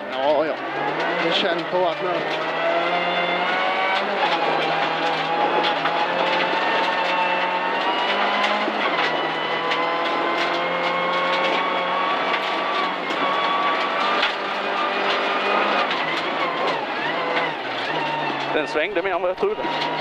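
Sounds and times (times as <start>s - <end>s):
car engine pulling hard: 0.0s - 20.0s
gravel pinging against underside: 0.0s - 20.0s.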